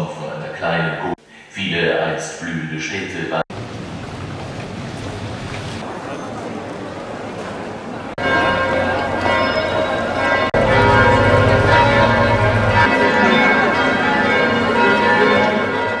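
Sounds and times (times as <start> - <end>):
church bells pealing: 8.1 - 16.0
low rumble: 10.6 - 12.9.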